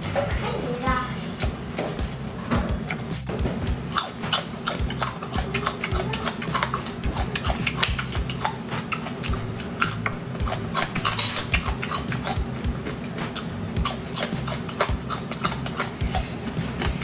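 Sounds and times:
crab shells crunching in chewing: 3.8 - 17.0.

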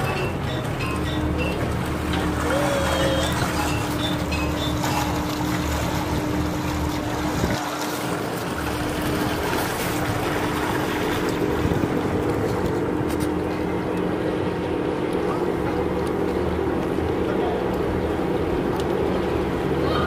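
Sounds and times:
boat engine droning: 0.0 - 20.0
water noise: 0.0 - 20.0
wind: 0.0 - 20.0.

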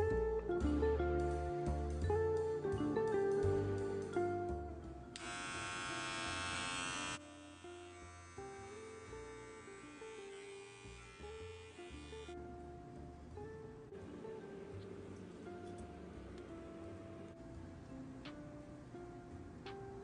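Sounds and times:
guitar music: 0.0 - 20.0
electric hair clipper buzzing: 5.2 - 12.4.

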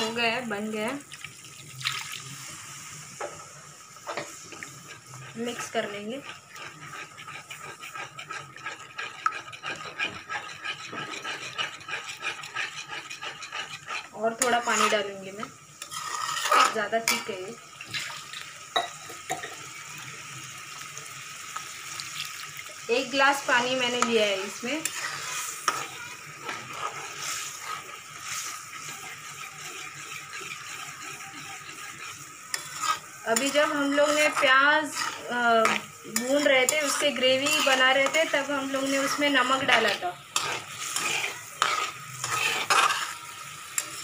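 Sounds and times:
spoon scraping metal pan: 4.0 - 17.6, 23.0 - 44.0
spoon clinking on pan: 18.7 - 19.6.

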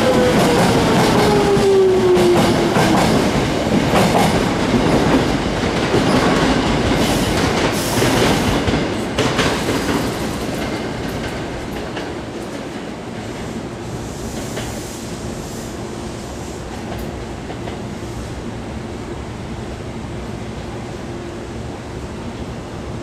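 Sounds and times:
train wheels clattering on rails: 0.0 - 13.5, 14.2 - 15.0.

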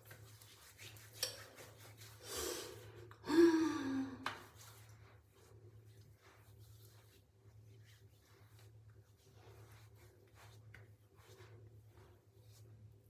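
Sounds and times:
person gasping: 2.3 - 4.3.

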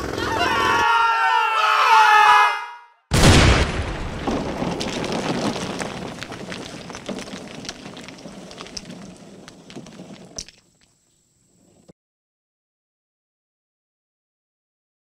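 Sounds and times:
sharp crack: 3.1 - 10.5
rubble crumbling and clattering: 3.2 - 11.9.

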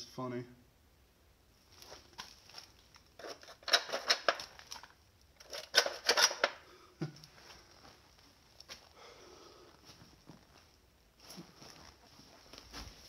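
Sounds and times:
plastic toy pieces clacking: 3.2 - 6.6.

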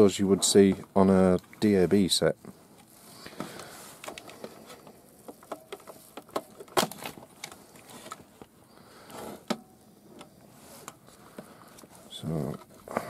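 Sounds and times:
plastic radio case clicks and knocks: 3.4 - 8.5.

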